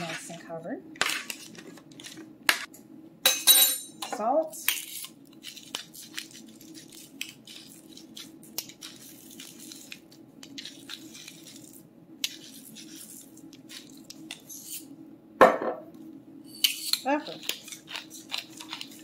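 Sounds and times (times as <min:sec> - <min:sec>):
steady low hum: 0:00.0 - 0:19.0
salt mill grinding salt: 0:04.8 - 0:14.9, 0:16.6 - 0:19.0.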